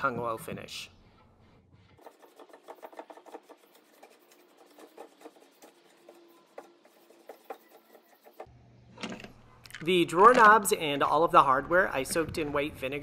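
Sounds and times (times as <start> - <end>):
cloth rubbing wood: 1.3 - 8.5.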